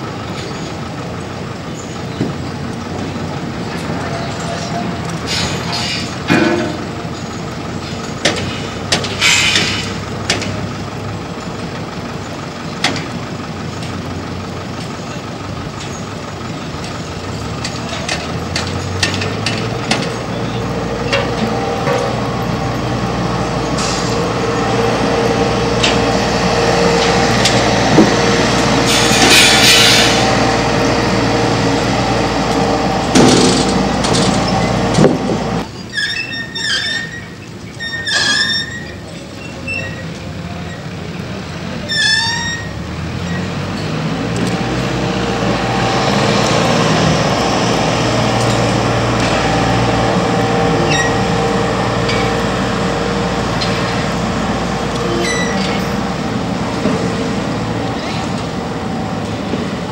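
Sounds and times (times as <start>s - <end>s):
diesel engine running: 0.0s - 59.9s
air brake hiss: 8.5s - 10.0s, 23.8s - 24.2s, 28.9s - 30.3s.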